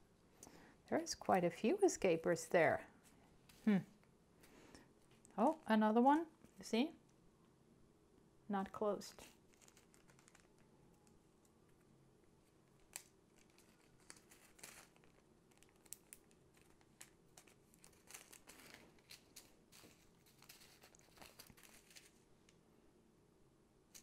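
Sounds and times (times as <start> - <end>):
plastic zip-lock bags crinkling: 9.2 - 11.2, 12.4 - 22.2.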